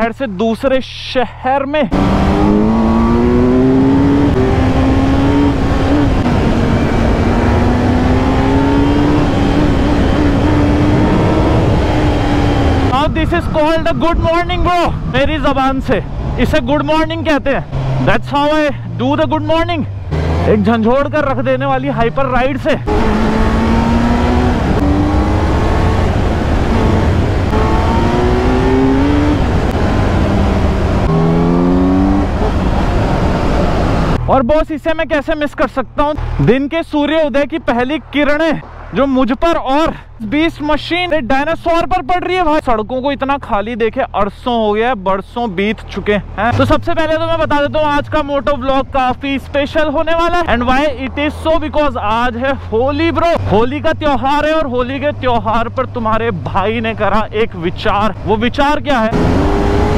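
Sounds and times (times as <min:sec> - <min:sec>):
motorcycle engine accelerating: 0:01.9 - 0:13.8, 0:16.0 - 0:34.3, 0:58.9 - 0:59.9
wind noise rumble: 0:01.9 - 0:18.2, 0:22.7 - 0:34.2.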